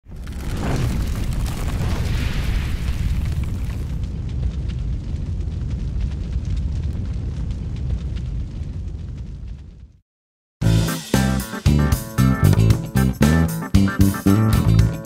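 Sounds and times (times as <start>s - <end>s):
crackling like burning embers: 0.0s - 10.0s
deep continuous rumble: 2.8s - 10.0s.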